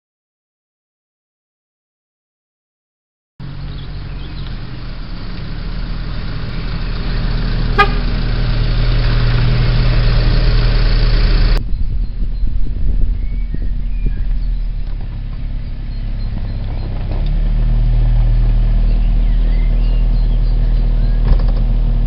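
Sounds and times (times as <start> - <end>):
vehicle engine approaching: 3.4 - 22.0
short horn toot: 7.7 - 8.4.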